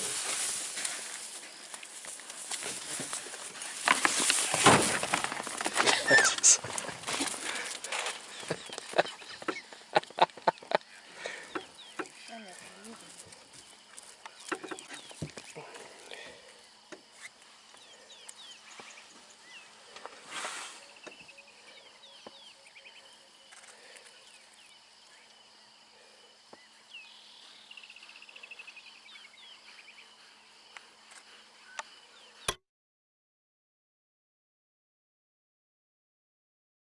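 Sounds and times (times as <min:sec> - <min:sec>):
small birds chirping: 0:05.8 - 0:32.5
brief hiss: 0:20.3 - 0:21.0.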